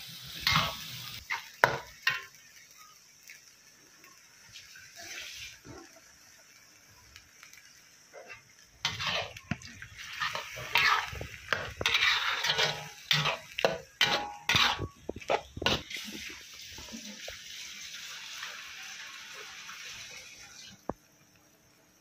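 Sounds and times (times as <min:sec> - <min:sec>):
metal spatula scraping a wok: 0:00.4 - 0:02.2, 0:08.1 - 0:17.2.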